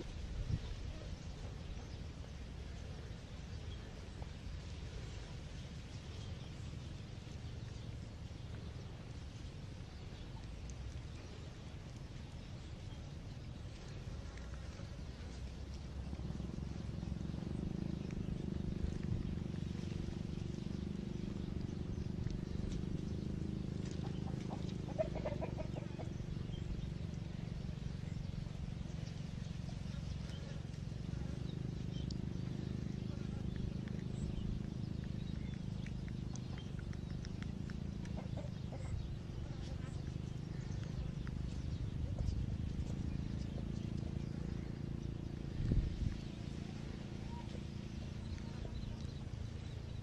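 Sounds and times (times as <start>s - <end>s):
low rumble: 0.0s - 50.0s
steady low hum: 0.0s - 50.0s
chirping animal calls: 13.7s - 27.2s, 29.7s - 45.0s
faint high ticks: 33.5s - 38.4s.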